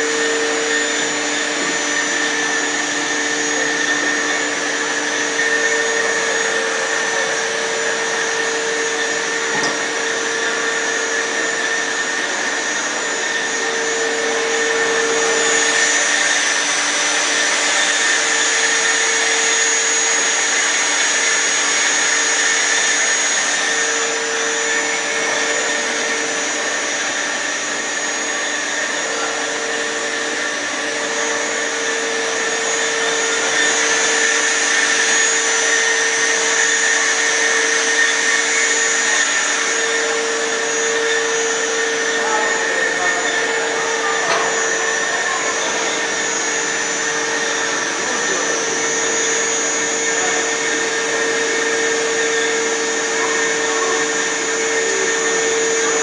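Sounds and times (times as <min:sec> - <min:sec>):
band saw whirring: 0:00.0 - 0:56.0
high whine: 0:00.0 - 0:56.0.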